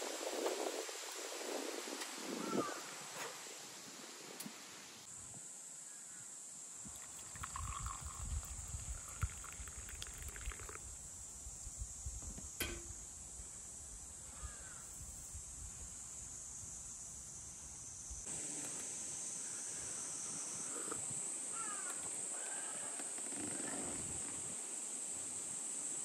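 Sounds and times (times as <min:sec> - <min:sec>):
insect chorus: 0:00.0 - 0:26.0
coffee pouring into cup: 0:06.9 - 0:11.0.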